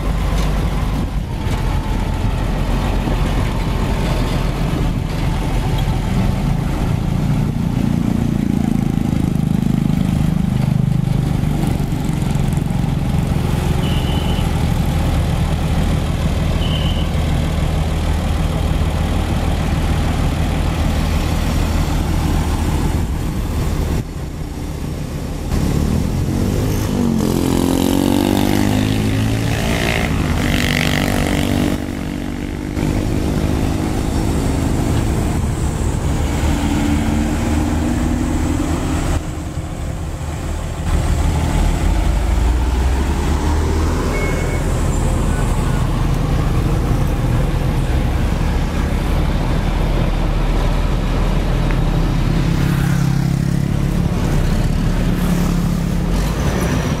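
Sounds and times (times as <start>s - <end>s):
bulldozer diesel engine droning: 0.0s - 57.0s
passing vehicle engine: 17.2s - 57.0s.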